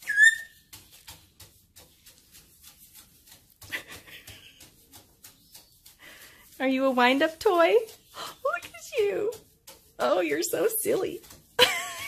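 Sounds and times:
bird feet tapping on wood: 0.0s - 11.7s
parrot sharp falling whistle: 0.1s - 0.5s.

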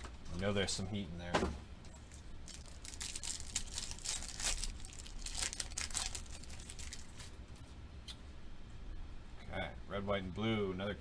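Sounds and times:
foil wrapper tearing and crinkling: 2.4s - 7.4s.

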